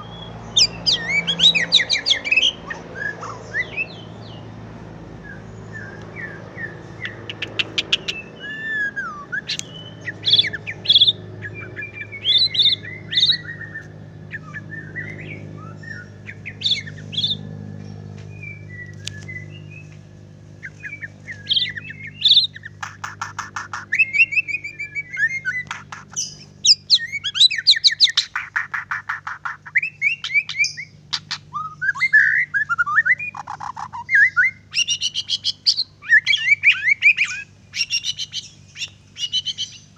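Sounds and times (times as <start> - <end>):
bird whistles and chattering: 0.0 - 4.0, 5.3 - 17.4, 20.6 - 39.9
fast rattling bird trills: 0.0 - 39.9.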